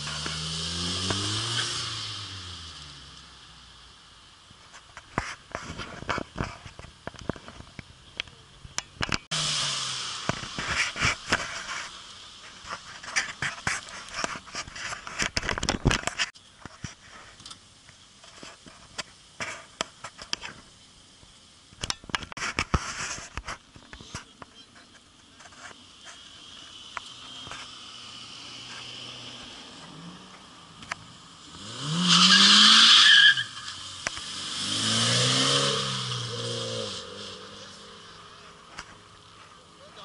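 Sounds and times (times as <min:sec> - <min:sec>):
car tyres squealing: 0:25.9 - 0:39.8.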